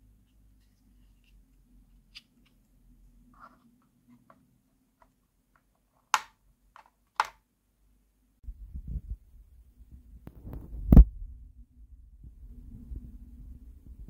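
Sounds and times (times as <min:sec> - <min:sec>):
low rumbling with thumps: 0:08.5 - 0:14.0.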